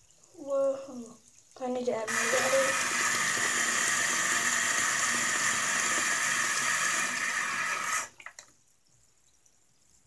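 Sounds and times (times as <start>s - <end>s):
faint water drips: 0.0s - 3.4s, 7.8s - 10.0s
faucet running into full sink: 0.2s - 8.5s.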